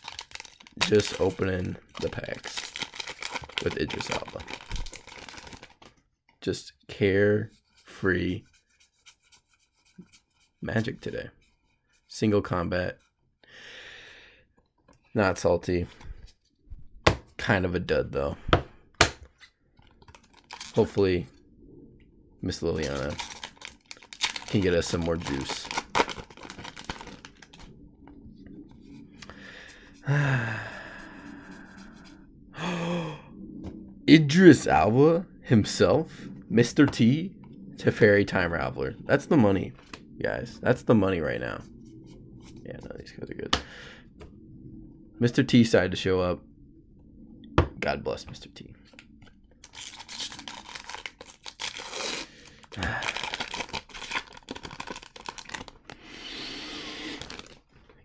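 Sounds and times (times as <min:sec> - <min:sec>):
foil wrapper crinkling: 0:00.0 - 0:05.9, 0:20.0 - 0:20.9, 0:22.8 - 0:27.7, 0:49.6 - 0:56.0, 0:57.1 - 0:57.8
cards clicking and rustling: 0:00.0 - 0:06.0, 0:22.8 - 0:27.6, 0:49.6 - 0:56.0, 0:57.2 - 0:57.6
long voiced sigh: 0:29.3 - 0:31.6, 0:32.6 - 0:33.4.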